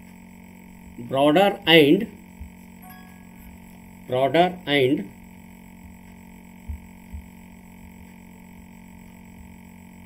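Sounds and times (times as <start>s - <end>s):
steady electrical hum: 0.0s - 10.0s
soft low thumps: 2.3s - 3.7s, 5.6s - 8.3s.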